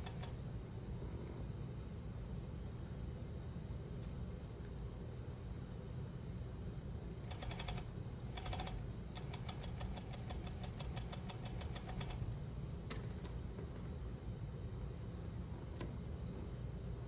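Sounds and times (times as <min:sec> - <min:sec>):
sewing machine needle ticking: 0:00.0 - 0:00.4, 0:07.3 - 0:07.8, 0:08.4 - 0:12.2
steady low hum: 0:00.0 - 0:17.0.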